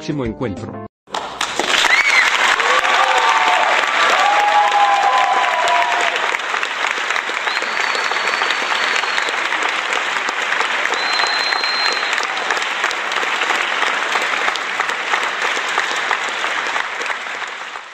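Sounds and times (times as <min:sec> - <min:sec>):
applause: 0:01.1 - 0:17.9
faint high whistle tones: 0:07.4 - 0:09.4, 0:10.9 - 0:12.2.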